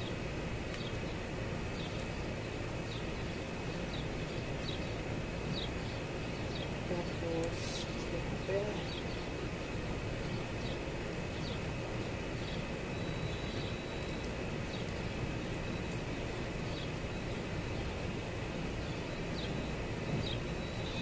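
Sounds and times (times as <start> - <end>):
background rumble and hiss: 0.0 - 21.0
faint high chirps: 12.5 - 17.9, 18.8 - 21.0.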